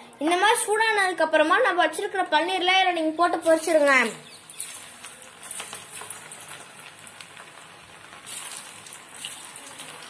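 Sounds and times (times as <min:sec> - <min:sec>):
deep-frying sizzle in oil: 0:03.2 - 0:10.0.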